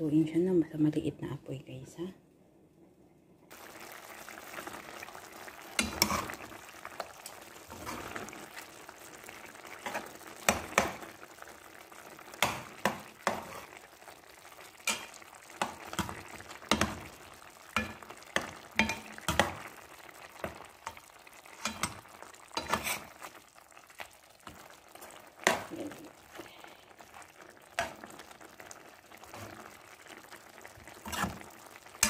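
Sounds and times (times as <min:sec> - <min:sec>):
broth simmering in a pan: 0:03.5 - 0:32.0
spoon knocking against pan: 0:17.8 - 0:19.6.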